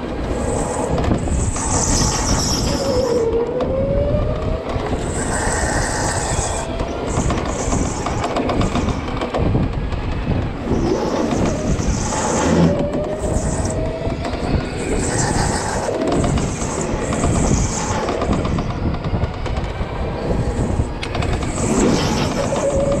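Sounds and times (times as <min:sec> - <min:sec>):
chassis rattle and rumble: 0:04.7 - 0:23.0.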